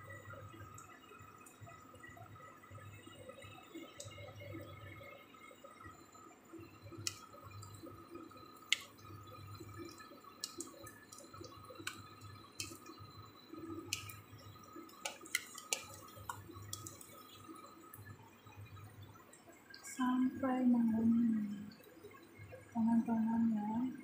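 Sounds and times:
faint steady hum: 0.0s - 24.0s
frying in hot oil: 0.0s - 24.0s
oil popping and spitting: 8.6s - 19.9s.

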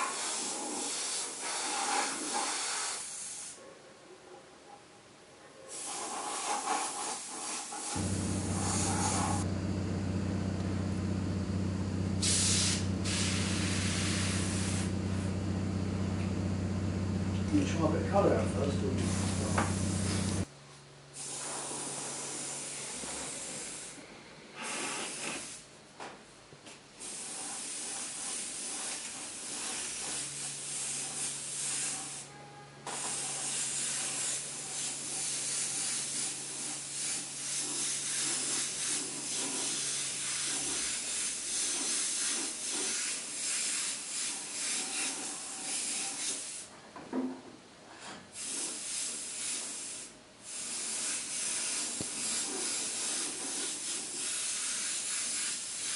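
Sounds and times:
airbrush hissing: 5.7s - 20.5s
low steady hum: 8.0s - 20.5s.

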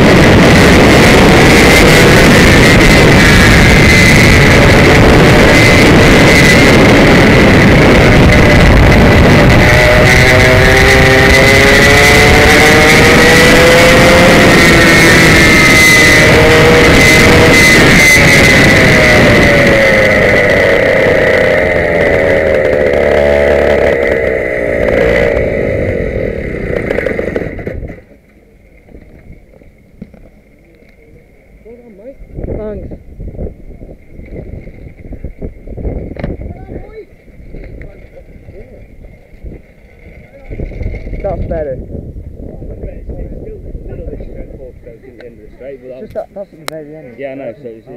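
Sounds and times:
kart engine revving: 0.0s - 28.1s.

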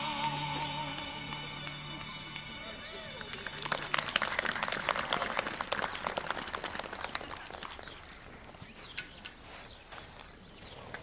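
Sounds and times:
audience applauding: 0.8s - 8.0s.

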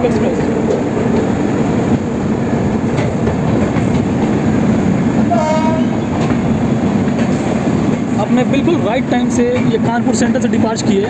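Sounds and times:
passing train rumble and clatter: 0.0s - 11.0s.

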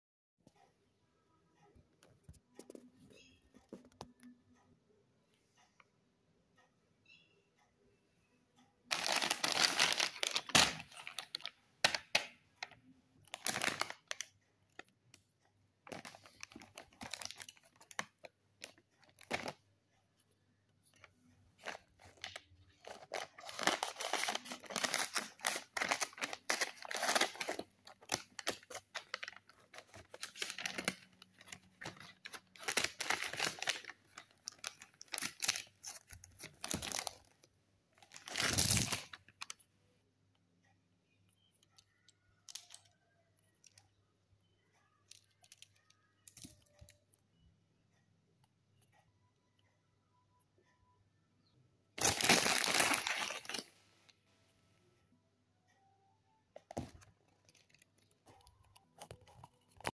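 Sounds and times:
paper packet tearing and crinkling: 8.9s - 12.0s, 13.3s - 14.2s, 21.6s - 37.2s, 38.1s - 39.2s, 52.0s - 53.6s
sharp paper crackles: 8.9s - 12.1s, 21.6s - 37.2s, 38.1s - 39.2s, 52.0s - 53.6s.

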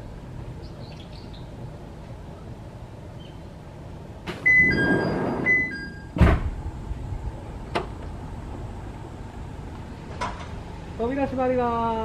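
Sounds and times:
sliding doors rumbling: 4.1s - 10.9s
doors shutting thunk: 4.2s - 6.7s
two-note door chime: 4.5s - 6.1s.

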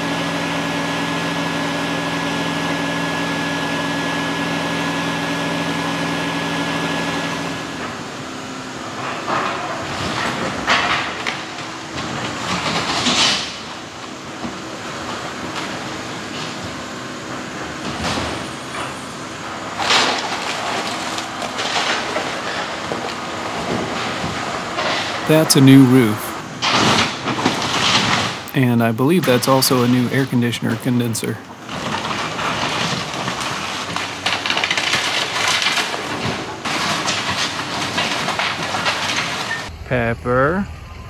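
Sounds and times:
excavator engine running: 0.0s - 41.0s
crunching of breaking timbers: 19.6s - 25.2s, 26.6s - 28.5s, 31.6s - 39.7s.

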